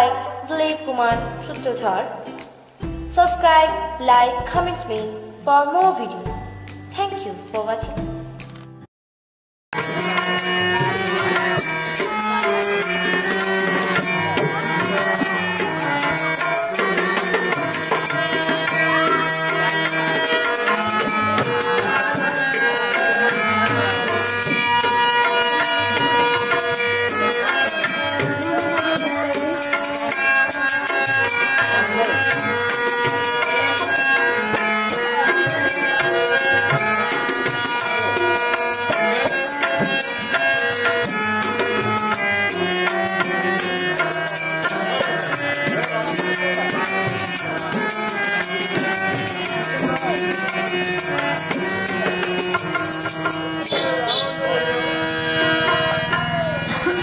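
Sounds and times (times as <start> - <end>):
barrel drum fast rhythm: 9.8 - 54.0
jingling rattle: 9.8 - 54.1, 56.4 - 57.0
harmonium chords: 9.8 - 57.0.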